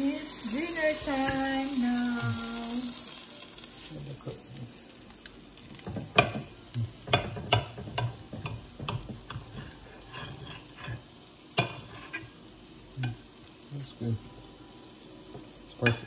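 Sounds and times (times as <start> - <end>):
knife and tongs scraping a plate: 9.3 - 12.3.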